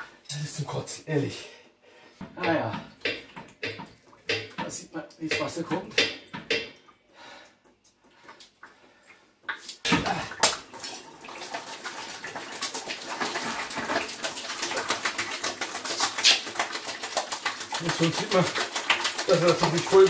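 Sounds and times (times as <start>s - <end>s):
water splashing into a bucket: 9.5s - 20.0s.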